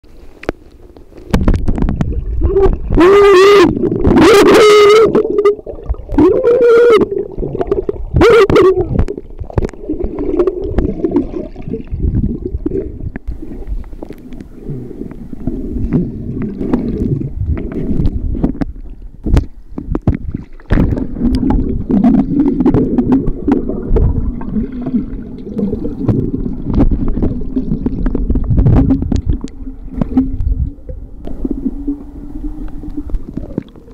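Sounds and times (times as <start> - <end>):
underwater clicks and knocks: 0.4 - 3.0, 8.9 - 11.3, 15.9 - 24.3, 25.6 - 33.9
bubbling gurgling water: 1.0 - 33.9
muffled woman calling underwater: 2.4 - 7.2, 8.1 - 9.1.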